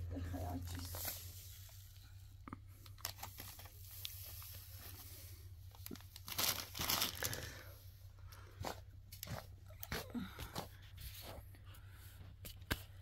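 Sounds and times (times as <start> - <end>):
crackling rustling handling noise: 0.2 - 10.0.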